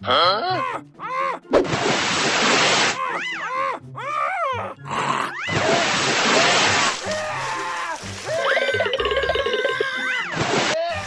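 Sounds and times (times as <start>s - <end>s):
cartoon voice grunting: 9.2s - 10.1s.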